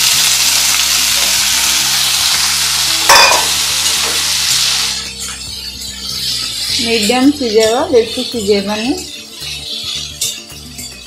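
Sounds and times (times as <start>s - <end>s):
vegetables sizzling in hot oil: 0.0s - 11.0s
spatula stirring in metal pan: 5.0s - 11.0s.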